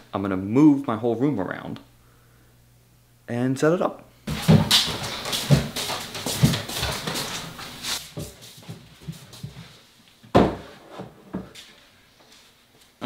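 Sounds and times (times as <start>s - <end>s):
wooden furniture knocks and thumps: 4.3s - 7.4s, 10.3s - 11.5s
footsteps on floor: 4.3s - 9.8s.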